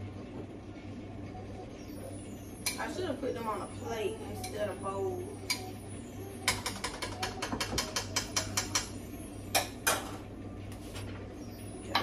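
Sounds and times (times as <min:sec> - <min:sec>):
kitchenware clacks: 0:06.4 - 0:10.2.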